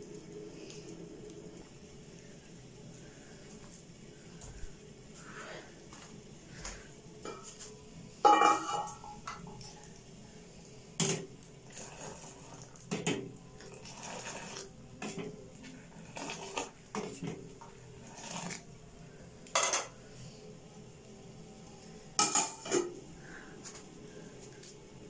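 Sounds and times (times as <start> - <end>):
ladle clinking against saucepan: 8.3 - 9.4
steel lid clattering onto pan: 8.3 - 9.5, 22.2 - 22.9.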